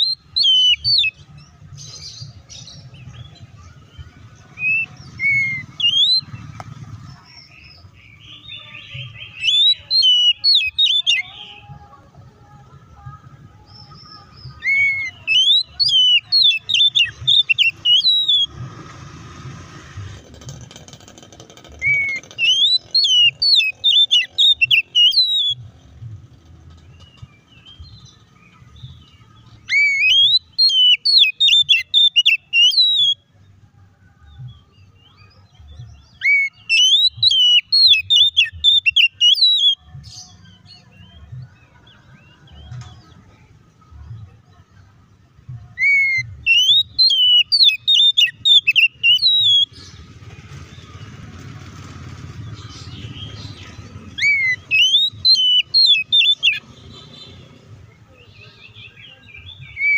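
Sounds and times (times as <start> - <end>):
bird singing whistled notes: 0.0 - 6.6, 7.2 - 11.7, 13.6 - 18.6, 21.8 - 25.7, 27.0 - 33.5, 34.4 - 43.0, 45.6 - 50.9, 52.4 - 57.3, 58.2 - 59.9.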